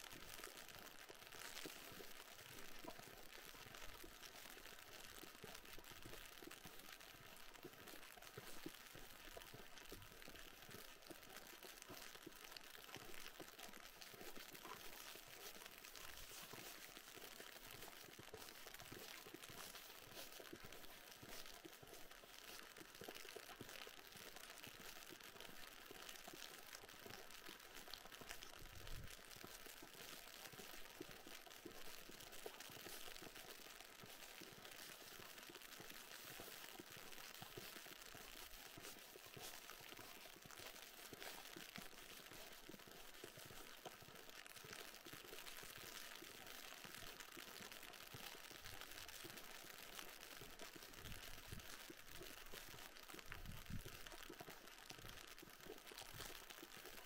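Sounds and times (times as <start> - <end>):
icy rain falling: 0.0 - 57.0.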